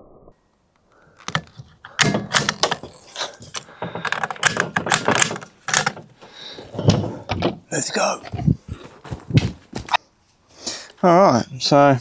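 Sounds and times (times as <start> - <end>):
rifle bolt clicking: 1.2 - 2.8.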